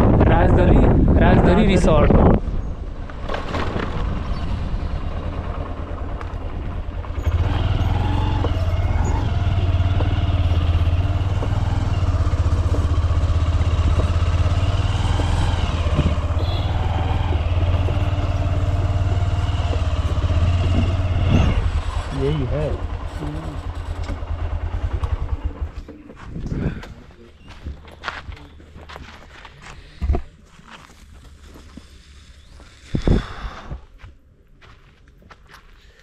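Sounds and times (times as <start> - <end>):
motorcycle engine running: 2.6 - 29.2.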